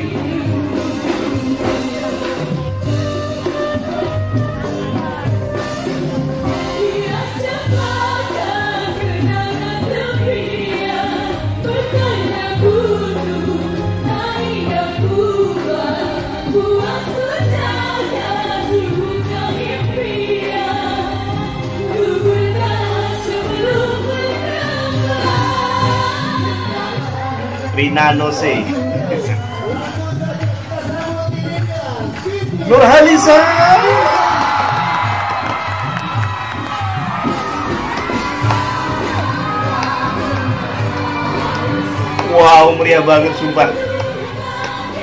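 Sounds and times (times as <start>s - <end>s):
group of singers singing pop song: 0.0s - 3.0s, 6.3s - 36.0s, 36.9s - 45.0s
band with steady bass beat: 0.0s - 7.2s.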